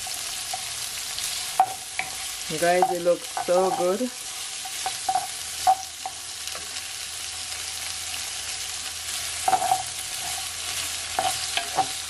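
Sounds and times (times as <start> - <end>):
vegetables sizzling in oil: 0.0 - 12.0
wooden spoon scraping a pan: 9.1 - 12.0.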